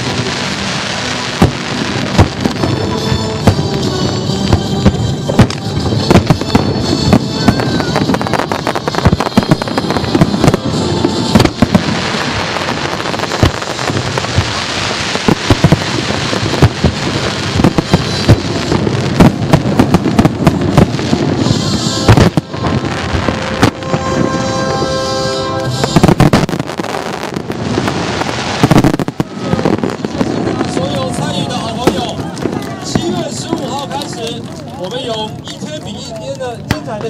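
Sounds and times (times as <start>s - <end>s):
firework crackling: 0.0s - 37.0s.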